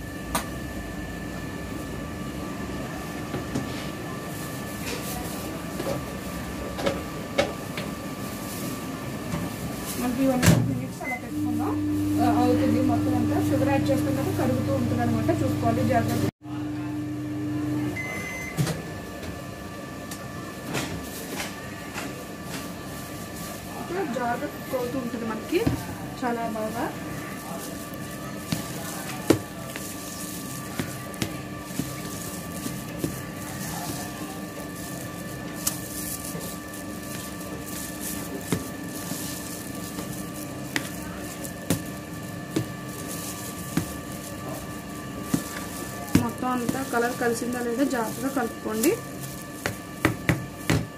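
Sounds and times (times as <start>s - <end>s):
microwave oven humming: 0.0s - 50.9s
short beep: 18.0s - 18.6s.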